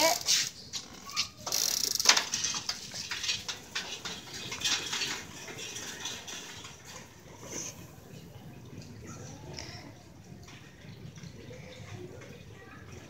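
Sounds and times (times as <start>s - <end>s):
sharp clatter: 0.0s - 7.2s
bicycle rattling on concrete: 0.0s - 9.5s.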